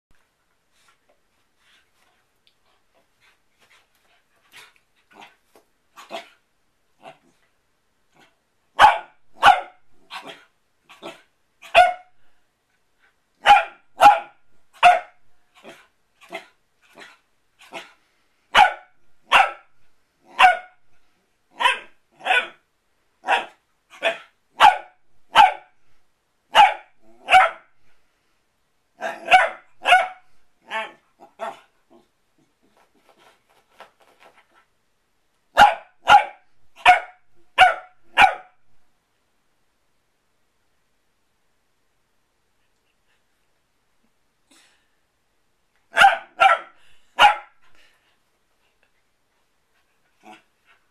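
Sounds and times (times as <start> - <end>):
puppy barking: 8.8 - 12.1, 13.4 - 17.1, 18.5 - 19.7, 20.3 - 20.8, 21.5 - 22.6, 23.2 - 25.7, 26.5 - 27.7, 29.0 - 31.7, 35.5 - 38.6, 45.9 - 47.6.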